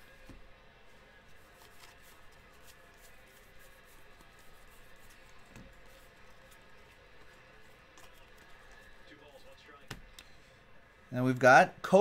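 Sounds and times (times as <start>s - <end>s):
cards sliding and ticking: 1.2s - 9.1s.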